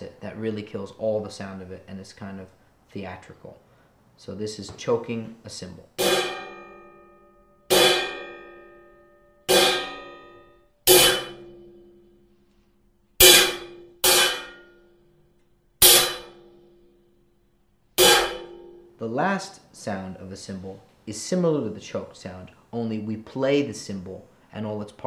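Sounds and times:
choked crash cymbal hits: 0:06.0 - 0:11.7, 0:13.2 - 0:14.8, 0:15.8 - 0:16.6, 0:18.0 - 0:19.0.

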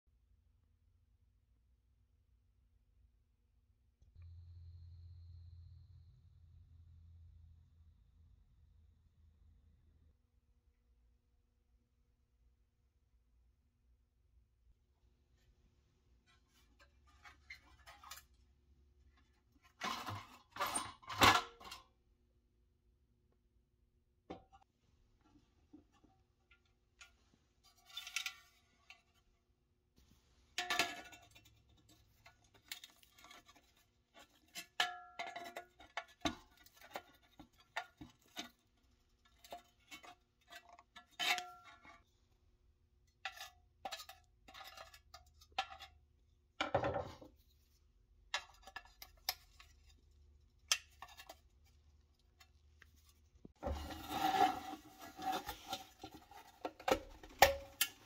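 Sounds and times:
metal scraping and rattling: 0:53.1 - 0:58.0.

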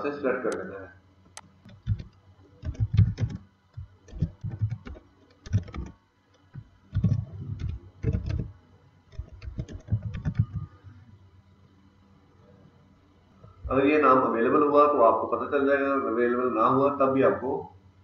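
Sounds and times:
typing on computer keyboard: 0:01.7 - 0:06.0, 0:06.9 - 0:08.5, 0:09.1 - 0:10.7.

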